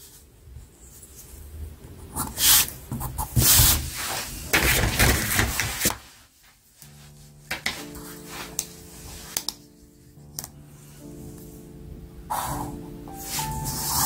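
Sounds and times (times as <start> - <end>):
quiet music: 6.6 - 14.0
pencil and ruler scraping paper: 12.4 - 14.0.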